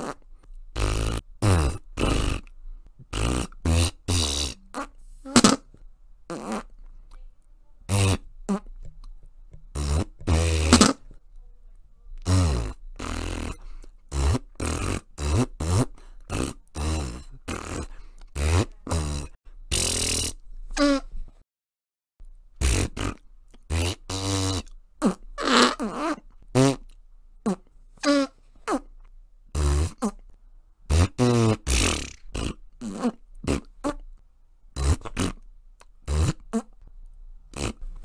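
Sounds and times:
fart sounds: 0:00.0 - 0:05.7, 0:06.3 - 0:06.8, 0:07.9 - 0:09.0, 0:09.7 - 0:11.1, 0:12.2 - 0:21.2, 0:22.6 - 0:28.9, 0:29.5 - 0:30.2, 0:30.9 - 0:34.1, 0:34.8 - 0:35.4, 0:36.1 - 0:36.8, 0:37.5 - 0:38.0.

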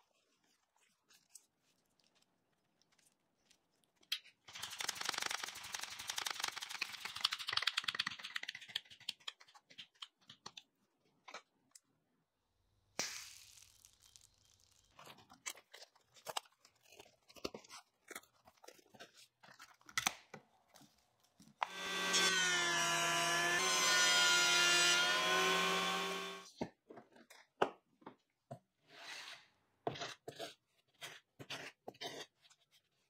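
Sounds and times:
thickness planer motor whine: 0:21.6 - 0:26.5.

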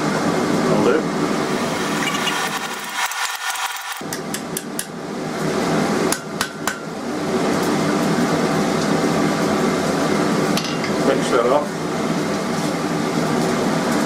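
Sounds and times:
hammer striking steel on anvil: 0:06.1 - 0:06.9.

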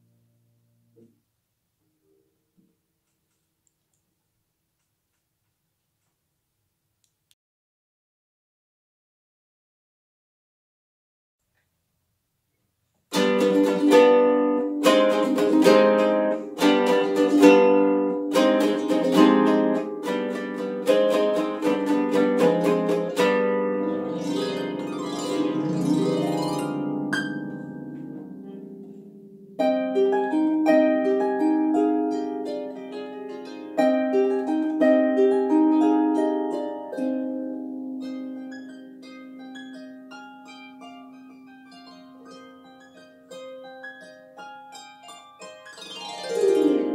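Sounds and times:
solo harp: 0:13.1 - 0:46.9.

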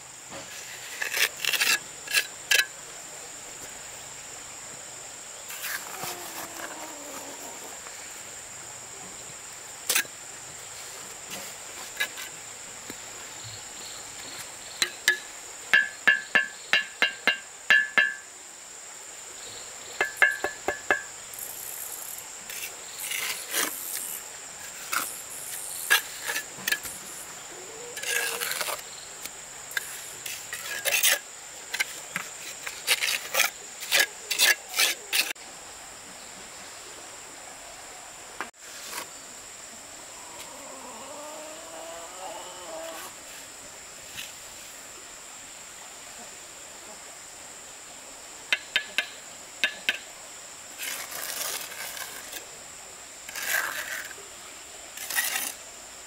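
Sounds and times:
high insect drone: 0:00.0 - 0:56.0
rasping scraping strokes: 0:27.9 - 0:28.8, 0:29.7 - 0:35.4, 0:50.8 - 0:52.4, 0:53.3 - 0:54.2, 0:55.0 - 0:55.6.

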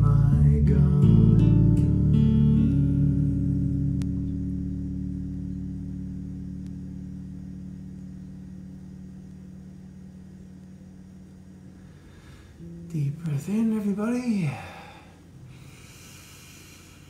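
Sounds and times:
low chord ringing on stringed instrument: 0:11.7 - 0:14.8.

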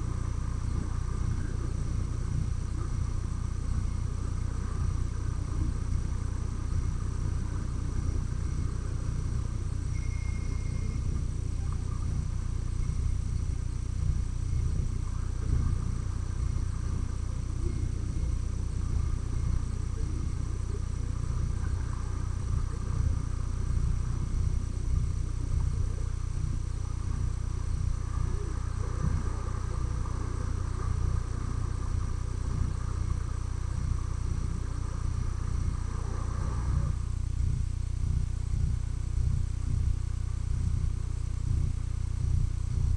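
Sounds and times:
faint high hiss: 0:00.0 - 0:42.9
flickering low rumble: 0:00.0 - 0:42.9
brief high tone: 0:09.9 - 0:11.1.

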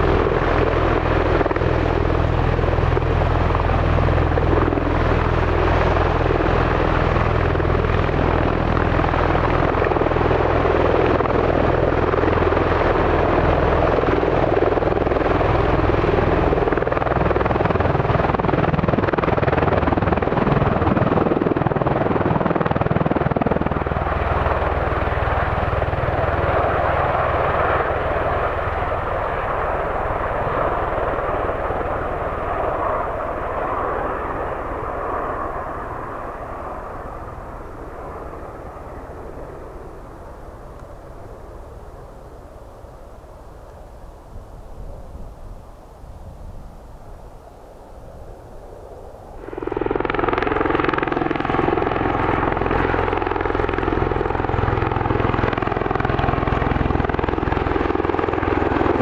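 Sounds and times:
aircraft rotors deep throb: 0:00.0 - 0:45.3, 0:48.6 - 0:59.0.

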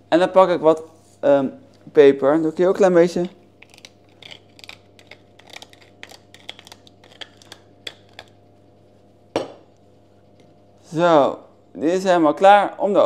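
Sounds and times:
pepper mill grinding: 0:03.6 - 0:08.4.

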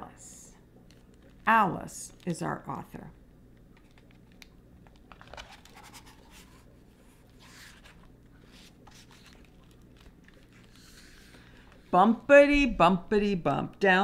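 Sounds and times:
book pages turning: 0:00.9 - 0:02.4, 0:03.6 - 0:11.9.

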